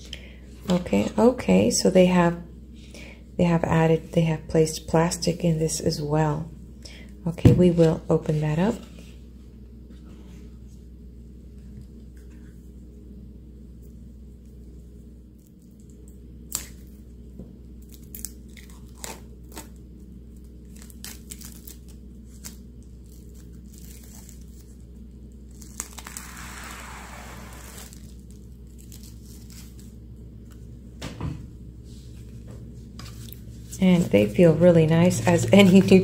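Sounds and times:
steady low hum: 0:00.0 - 0:36.0
plastic wrap crackling: 0:20.4 - 0:30.0
plastic wrap tearing: 0:20.6 - 0:30.0.

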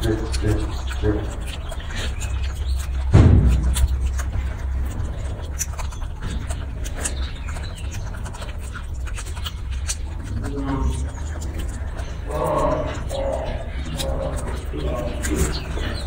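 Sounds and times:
monkey chewing with wet clicks: 0:00.0 - 0:16.0
low rumble: 0:02.5 - 0:09.0
heavy thump: 0:03.1 - 0:03.9.

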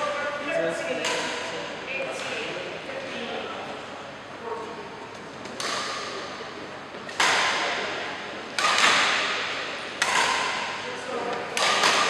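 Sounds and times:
rackets hitting shuttlecock: 0:01.0 - 0:01.6, 0:05.4 - 0:12.0.

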